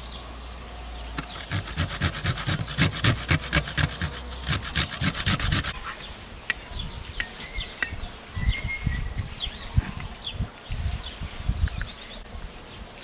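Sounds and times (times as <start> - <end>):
garlic grated on metal grater: 1.2 - 5.8.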